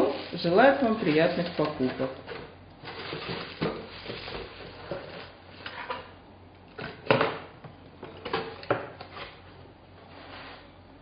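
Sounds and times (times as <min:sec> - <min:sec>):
plastic wrapping crinkling: 0:00.0 - 0:02.2.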